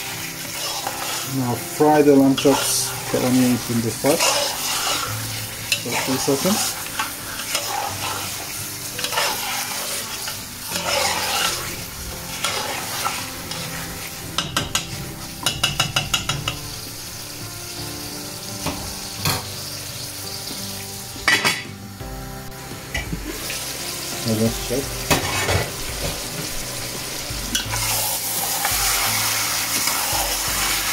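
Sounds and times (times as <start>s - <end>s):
meat and onions sizzling in a pot: 0.0s - 30.9s
metal spoon scraping: 0.4s - 1.6s, 2.2s - 5.1s, 5.7s - 13.7s.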